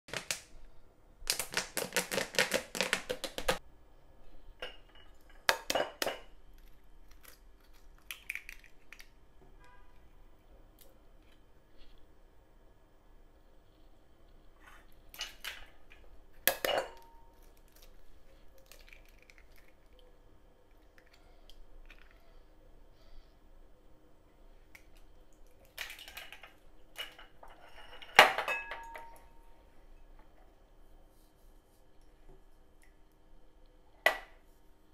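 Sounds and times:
egg cracking on a glass bowl: 0:01.3 - 0:03.6, 0:05.4 - 0:09.2, 0:18.5 - 0:20.0
glassware clinking: 0:16.5 - 0:17.3, 0:27.6 - 0:29.3
kitchen scrapes and rustles: 0:25.8 - 0:28.6.

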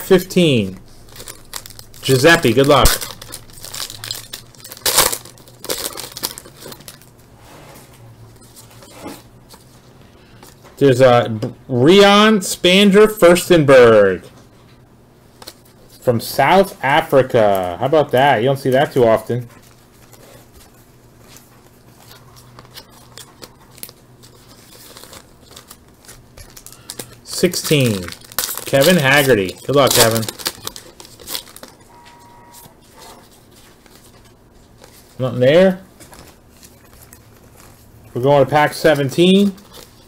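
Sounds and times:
low steady hum: 0:00.0 - 0:40.0
foil wrapper crinkling: 0:00.1 - 0:07.2, 0:15.3 - 0:40.0.

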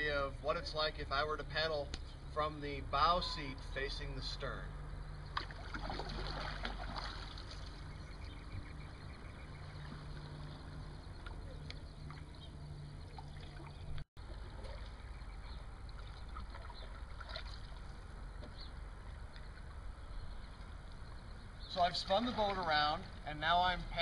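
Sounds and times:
paddle splashing through water: 0:05.3 - 0:08.4, 0:09.4 - 0:18.6.

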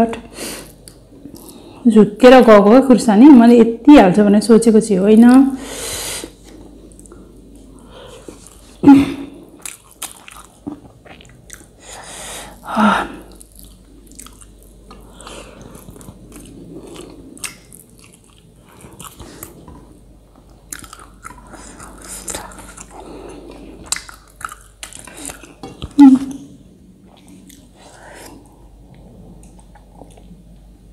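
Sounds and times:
person chewing food: 0:06.4 - 0:08.8, 0:09.4 - 0:12.6, 0:13.2 - 0:30.7.

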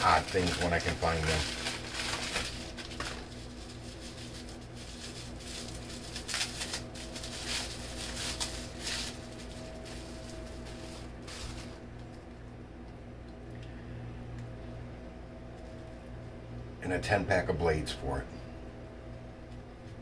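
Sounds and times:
packaging rustling and clicking: 0:00.0 - 0:12.2
steady low hum: 0:00.0 - 0:20.0.

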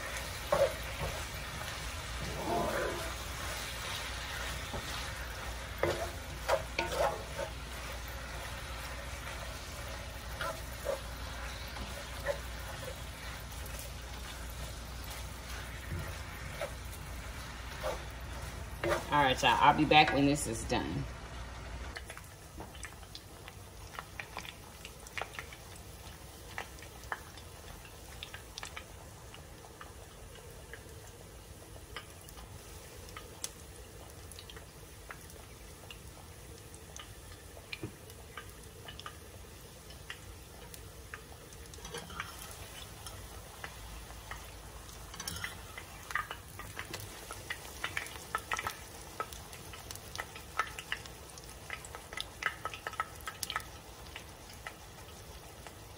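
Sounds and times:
egg mixture sizzling in pan: 0:00.0 - 0:55.9
fork scraping against pan: 0:05.8 - 0:07.6, 0:17.7 - 0:18.1.

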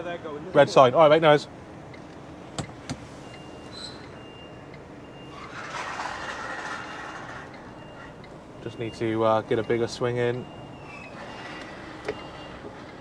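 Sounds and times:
reversing alarm beeping: 0:03.1 - 0:13.0.

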